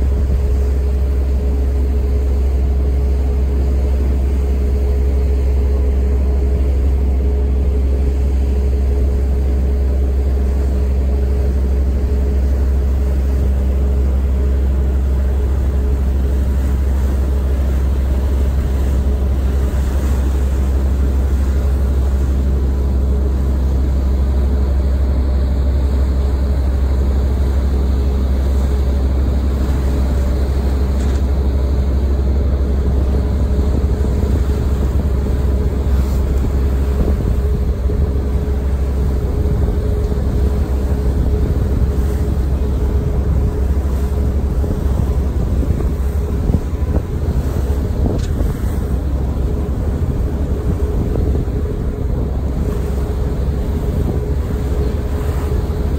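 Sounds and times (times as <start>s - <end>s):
ferry engine drone: 0.0s - 55.9s
wind buffeting microphone: 28.2s - 55.9s.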